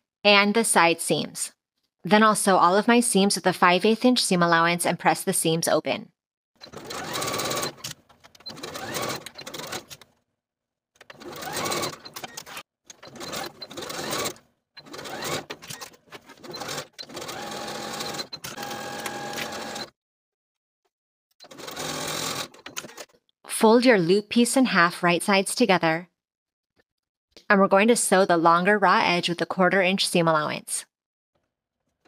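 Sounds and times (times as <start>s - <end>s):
sewing machine stitching: 6.6s - 10.2s, 11.0s - 19.9s, 21.4s - 23.2s.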